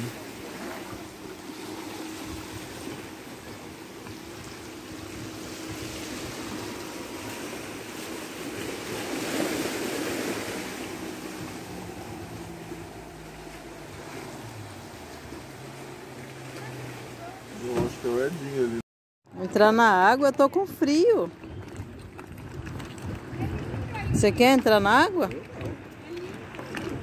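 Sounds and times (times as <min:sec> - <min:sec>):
waves lapping on rocky shore: 0:00.0 - 0:18.8, 0:19.4 - 0:27.0.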